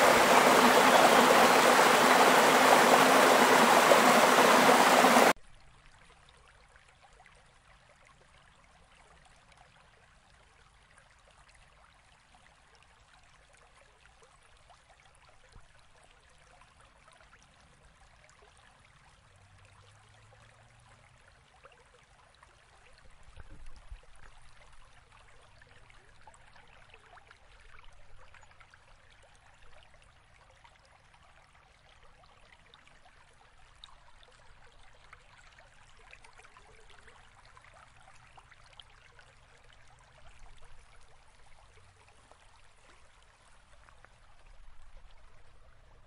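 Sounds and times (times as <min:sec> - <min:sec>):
rushing torrent water: 0:00.0 - 0:05.4.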